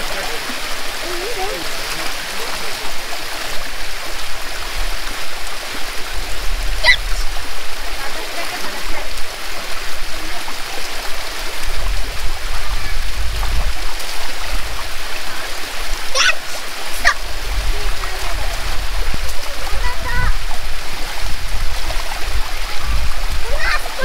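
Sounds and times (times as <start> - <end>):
water running over stone: 0.0 - 24.0
children's feet splashing: 6.1 - 9.2, 10.1 - 24.0.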